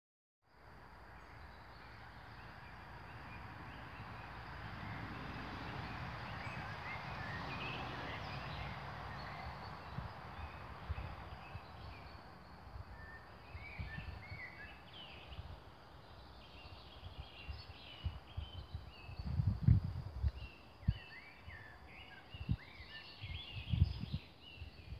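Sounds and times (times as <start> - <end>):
small birds chirping: 1.1 - 24.9.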